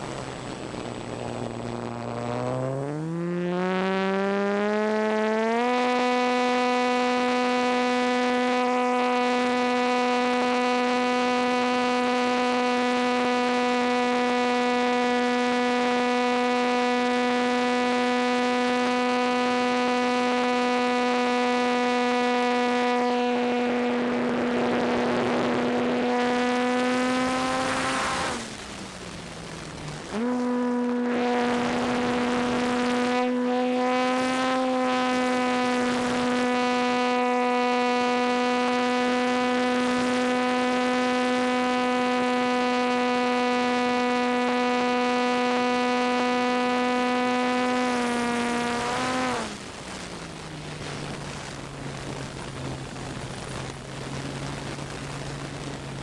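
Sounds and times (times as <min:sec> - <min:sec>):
electric motor and propeller whine: 0:00.0 - 0:56.0.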